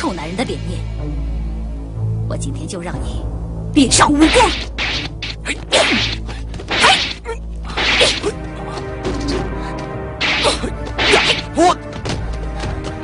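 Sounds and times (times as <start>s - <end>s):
background music: 0.0s - 13.0s
swishing whooshes: 4.2s - 7.2s
whacks of blows: 4.2s - 8.4s, 10.2s - 11.6s.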